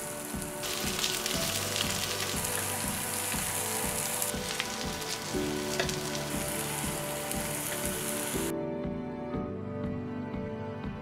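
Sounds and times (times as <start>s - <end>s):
patties sizzling in oil: 0.0s - 8.5s
light background music: 0.0s - 11.0s.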